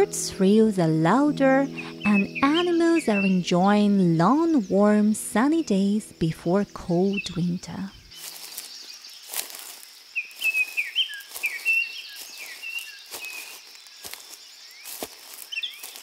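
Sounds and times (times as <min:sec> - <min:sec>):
songbirds chirping: 0:00.0 - 0:16.0
footsteps on dry leaves: 0:08.1 - 0:16.0.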